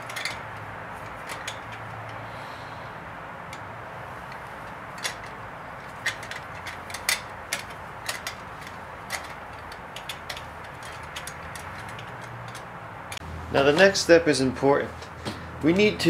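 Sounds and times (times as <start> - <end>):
gauge and hose clicks: 4.3 - 13.2
steady low hiss: 12.2 - 16.0.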